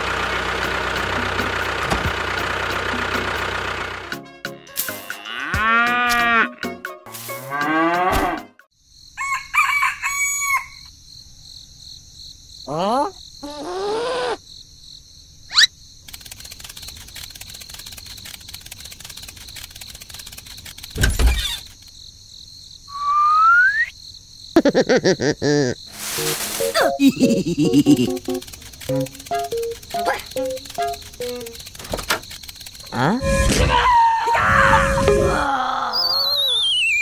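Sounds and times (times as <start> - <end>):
engine running: 0.0 - 4.3, 16.1 - 21.1, 26.2 - 33.6
rooster-like crowing: 9.2 - 10.9.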